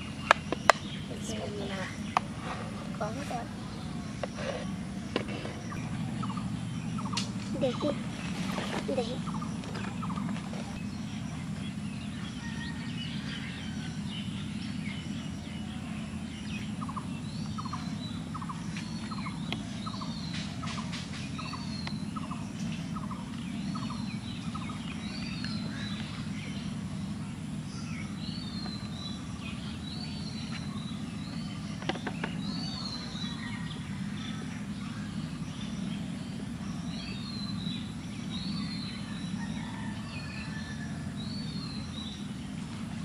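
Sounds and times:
bird short evenly spaced notes: 0.0s - 39.7s
steady low background hum: 0.0s - 43.0s.

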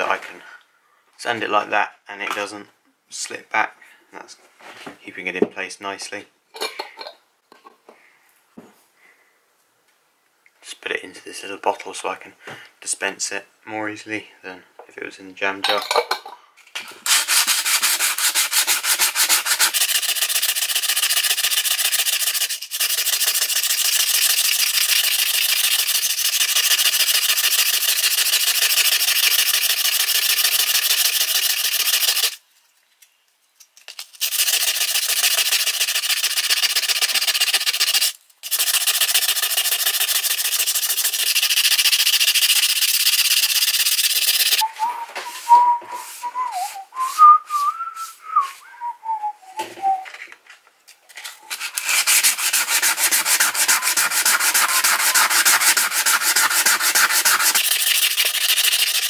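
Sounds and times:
sandpaper scratching on steel: 17.0s - 32.4s, 34.2s - 44.6s, 45.3s - 48.2s, 51.5s - 59.0s.

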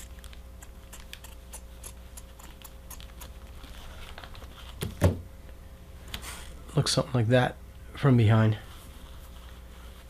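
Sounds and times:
scissors snipping: 0.0s - 3.4s
low steady hum: 0.0s - 10.0s.

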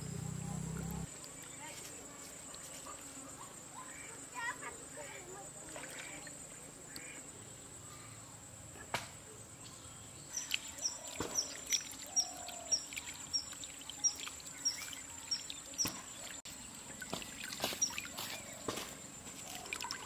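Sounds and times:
water sloshing and trickling: 5.3s - 7.2s, 10.3s - 20.0s
bird chirping: 9.6s - 18.7s
splashy knocks: 11.2s - 11.5s.

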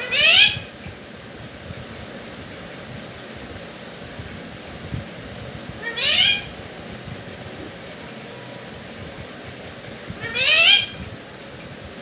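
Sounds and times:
parakeet calls rising in pitch: 0.0s - 0.8s, 5.7s - 8.7s, 10.0s - 11.1s.

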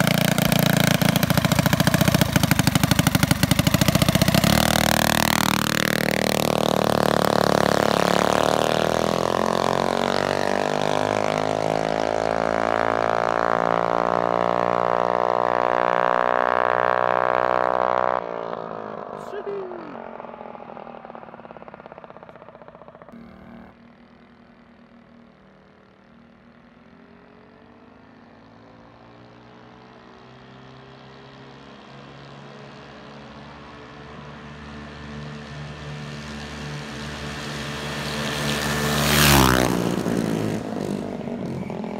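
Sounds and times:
mini bike engine revving: 0.0s - 23.8s, 35.4s - 41.9s.

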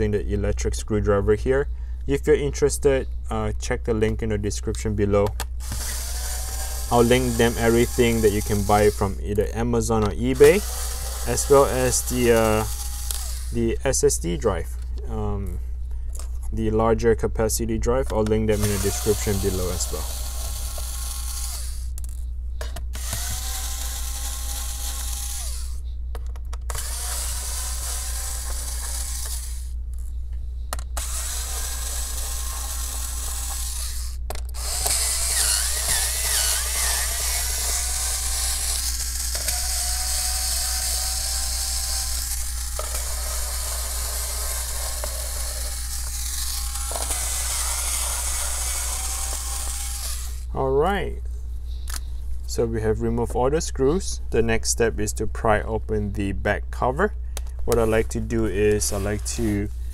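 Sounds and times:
electric screwdriver whirring: 5.6s - 9.1s, 10.3s - 13.6s, 18.5s - 22.0s, 23.0s - 25.8s, 26.7s - 29.8s, 31.0s - 50.5s.

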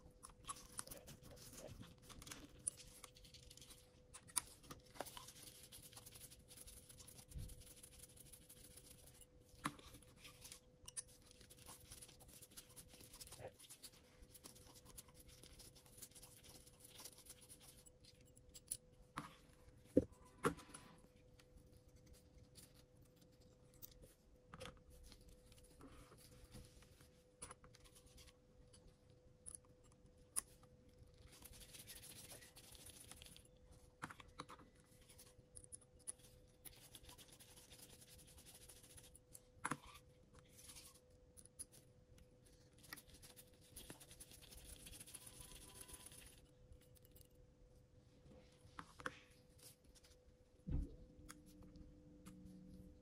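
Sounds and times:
faint hum: 45.0s - 53.0s.

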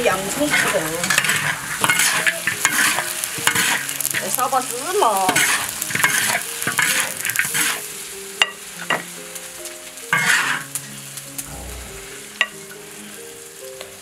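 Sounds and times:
meat sizzling in a wok: 0.0s - 14.0s
soft background music: 0.0s - 14.0s
spatula scraping a wok: 0.3s - 4.5s, 5.2s - 7.9s, 10.1s - 10.8s.

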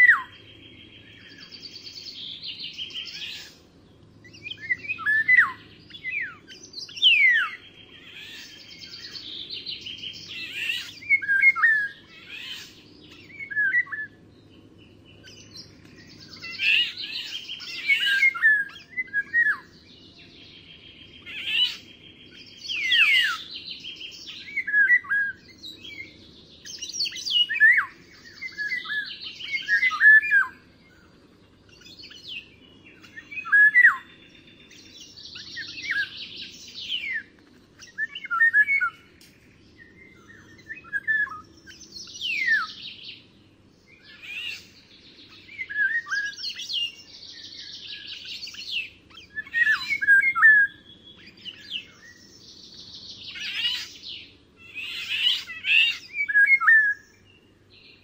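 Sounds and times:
birds singing: 0.0s - 58.0s.

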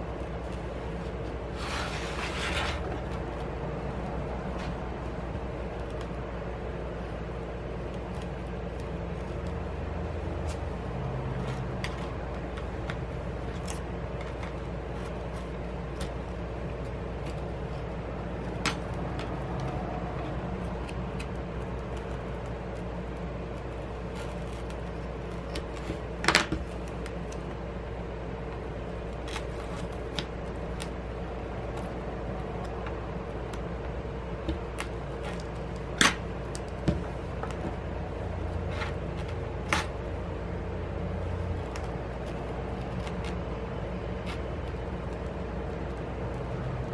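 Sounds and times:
steady low hum: 0.0s - 46.9s
short scrape: 1.5s - 3.0s.

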